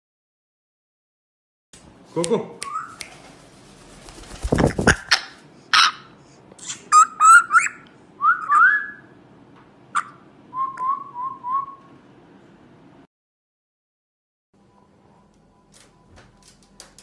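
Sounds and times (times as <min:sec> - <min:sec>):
parrot wingbeats: 0:02.8 - 0:05.4
parrot whistles and chirps: 0:06.6 - 0:09.2.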